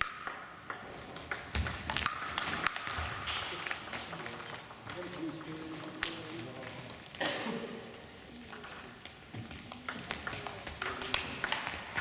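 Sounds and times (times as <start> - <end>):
table tennis ball clicking: 0.0 - 6.2, 8.5 - 9.0, 9.8 - 12.0.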